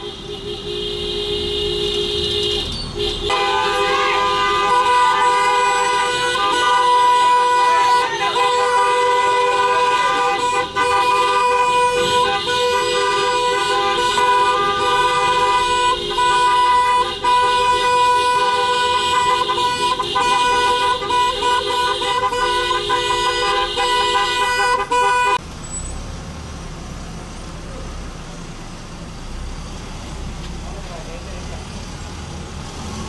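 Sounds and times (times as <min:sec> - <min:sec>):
vehicle horns blaring: 0:00.0 - 0:25.4.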